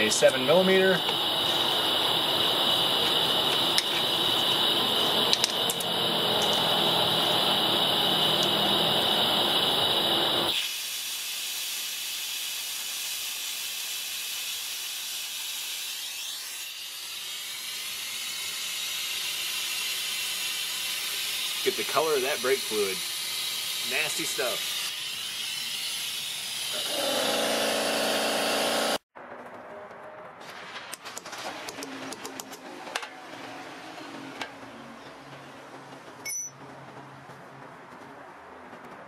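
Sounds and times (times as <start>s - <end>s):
vacuum brake bleeder hissing: 0.0s - 29.0s.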